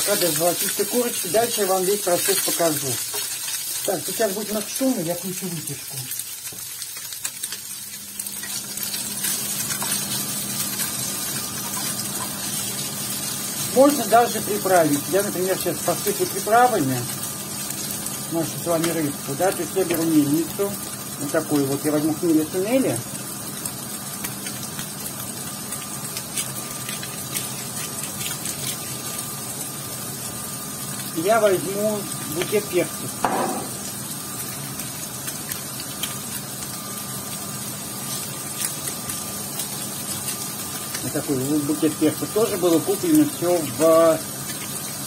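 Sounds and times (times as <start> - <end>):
fish sizzling in a frying pan: 0.0 - 45.0
range hood fan running: 0.0 - 45.0
extractor fan humming: 7.7 - 25.8.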